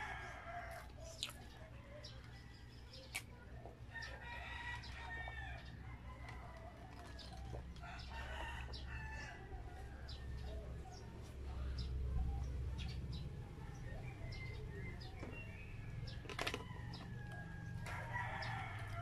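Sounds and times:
rooster crowing: 0:00.0 - 0:01.0, 0:04.0 - 0:10.6, 0:16.5 - 0:19.0.

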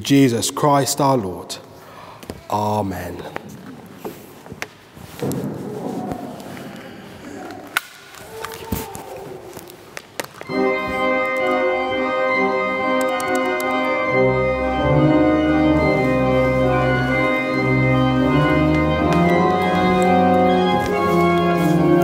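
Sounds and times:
church organ chords: 0:10.4 - 0:22.0.

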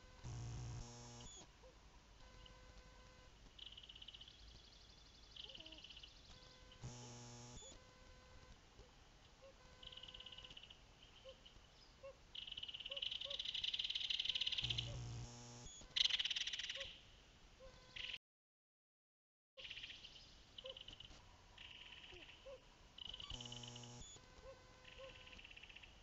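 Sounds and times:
low buzz: 0:00.0 - 0:01.4, 0:06.4 - 0:08.5, 0:14.6 - 0:15.9, 0:23.2 - 0:24.4.

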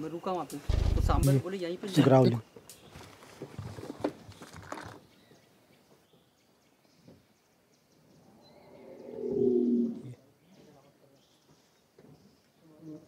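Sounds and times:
low animal call: 0:08.3 - 0:10.2.

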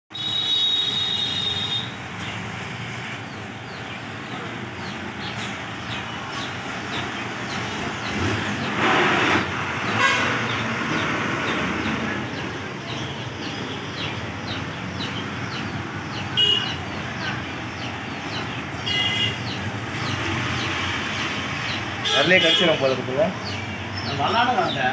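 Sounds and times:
vehicle horn toots: 0:00.1 - 0:02.0, 0:09.9 - 0:10.6, 0:16.4 - 0:16.8, 0:18.8 - 0:19.4, 0:22.0 - 0:22.9
road traffic noise: 0:00.1 - 0:24.9.

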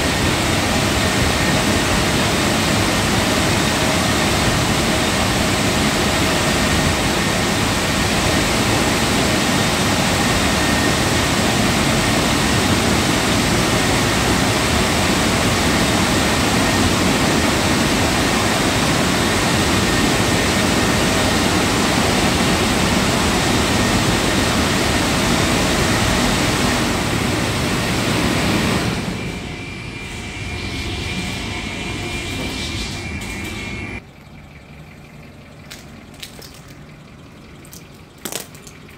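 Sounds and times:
car wash dryer blowers: 0:00.0 - 0:37.4
machine hum with high whine: 0:00.0 - 0:38.9.

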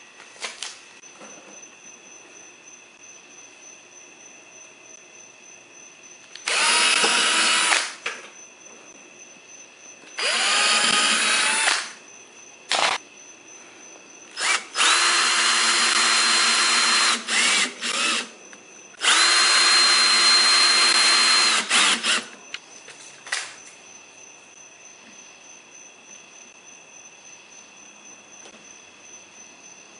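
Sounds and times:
cordless drill whining: 0:06.3 - 0:08.0, 0:10.2 - 0:12.0, 0:14.4 - 0:18.3, 0:19.0 - 0:22.4.

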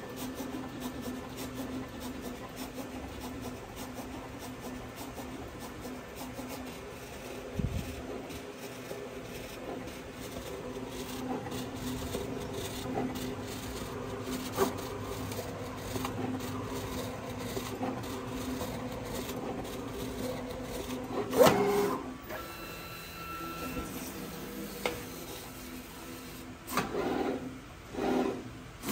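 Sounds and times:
cutting machine motor whir: 0:05.3 - 0:27.4.

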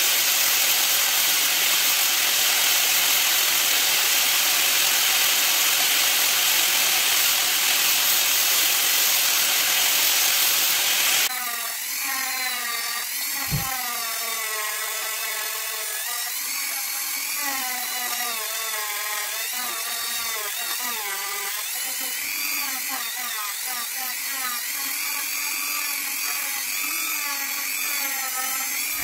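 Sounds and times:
angle grinder grinding: 0:00.0 - 0:29.0
rotary tool whining: 0:02.3 - 0:29.0
short low thump: 0:13.5 - 0:13.7.

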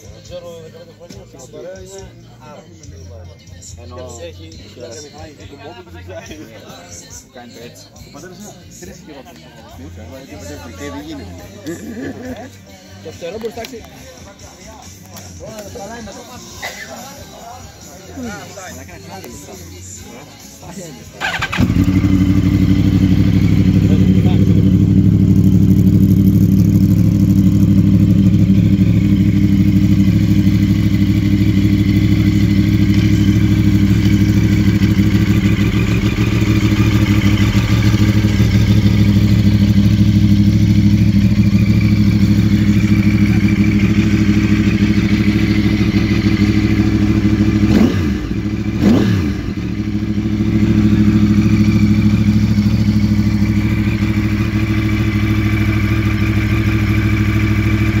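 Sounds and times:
motorcycle engine idling: 0:17.6 - 0:58.0
motorcycle throttle blips: 0:21.2 - 0:58.0.

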